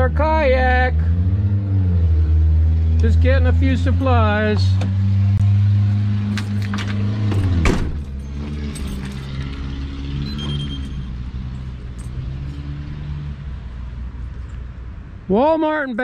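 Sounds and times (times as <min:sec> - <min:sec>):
door shutting thump: 0:06.8 - 0:08.2.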